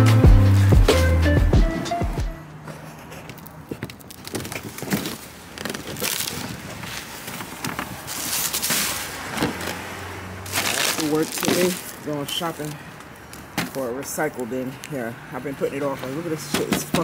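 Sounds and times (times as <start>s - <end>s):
plastic bags rustling: 2.6s - 15.1s
trash bin lids handled: 16.4s - 17.0s.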